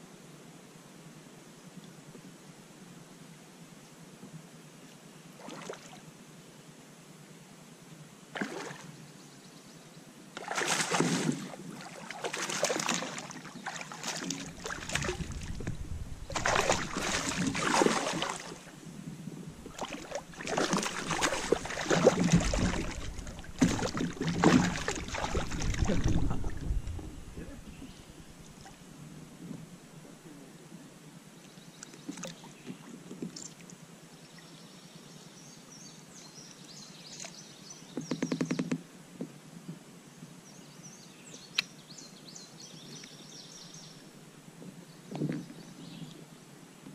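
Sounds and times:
fish splashing at surface: 0:10.4 - 0:11.5, 0:12.2 - 0:18.7, 0:19.6 - 0:27.4.

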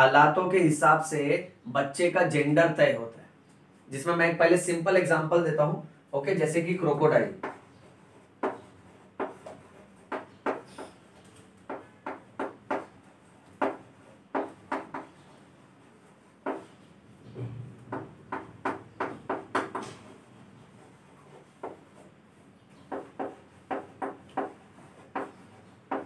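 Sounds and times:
chalk tapping and scraping on chalkboard: 0:07.1 - 0:17.2, 0:17.8 - 0:26.0.

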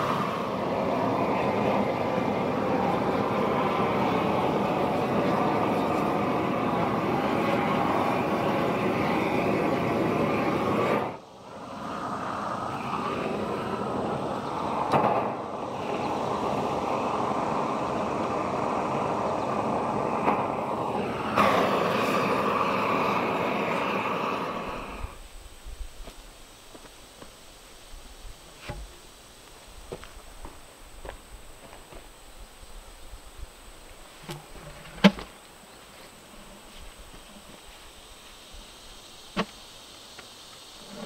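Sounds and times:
propane torch flame rushing: 0:00.0 - 0:41.0.

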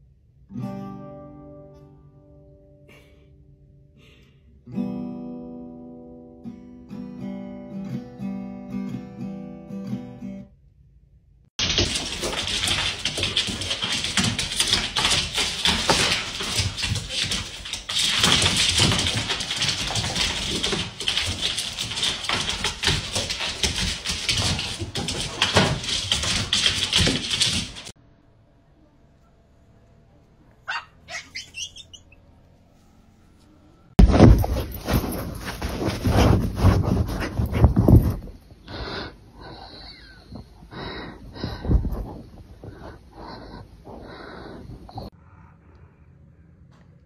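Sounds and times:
broom scraping on hard floor: 0:34.0 - 0:38.4.

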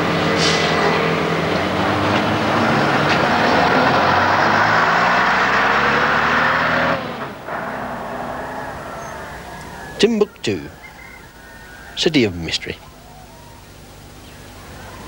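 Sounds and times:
loud road noise: 0:00.0 - 0:12.0
bus diesel engine humming: 0:00.0 - 0:15.0
street noise: 0:00.0 - 0:15.0.

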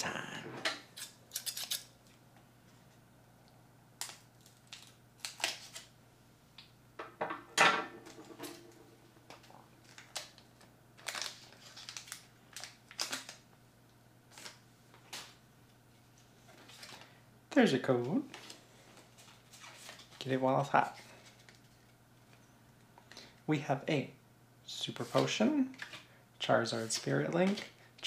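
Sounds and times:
scissors cutting foil pack: 0:01.0 - 0:01.9, 0:04.0 - 0:05.9, 0:11.0 - 0:13.4
foil wrapper crinkling: 0:04.0 - 0:05.9, 0:09.3 - 0:13.5, 0:18.3 - 0:20.3.

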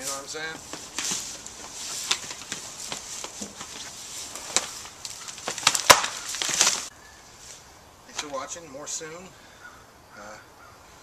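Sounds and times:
strip rustling against vines: 0:00.0 - 0:08.6.

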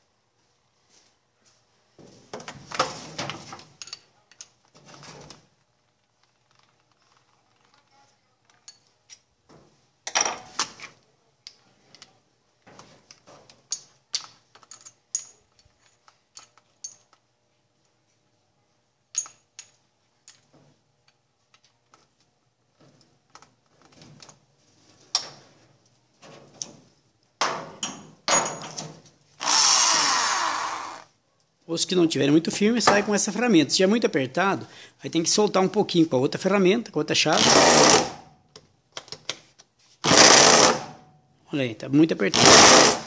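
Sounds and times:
electric drill running: 0:29.4 - 0:31.1, 0:37.4 - 0:38.2, 0:40.1 - 0:40.9, 0:42.4 - 0:43.0.

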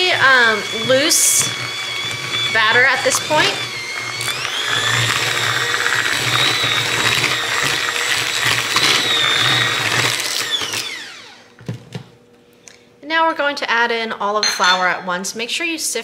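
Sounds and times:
electric hand mixer whirring: 0:00.0 - 0:12.0.

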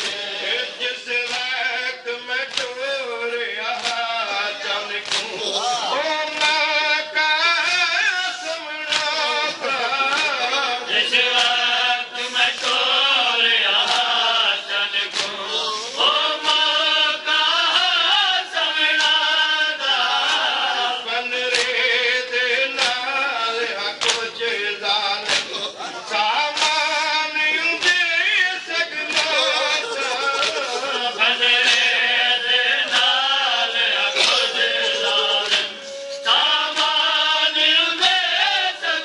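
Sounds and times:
men chanting a lament: 0:00.0 - 0:39.0
chest-beating slaps: 0:02.4 - 0:02.8, 0:05.0 - 0:05.4, 0:15.1 - 0:15.4, 0:21.5 - 0:21.8, 0:24.0 - 0:24.3, 0:25.2 - 0:25.6, 0:26.5 - 0:26.9, 0:30.3 - 0:32.0, 0:34.2 - 0:37.0.

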